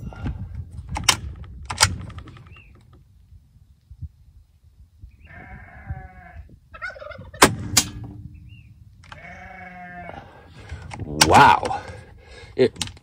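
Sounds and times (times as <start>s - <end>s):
air rifle shot: 7.4s - 8.2s
drawn-out animal calls: 9.0s - 10.8s.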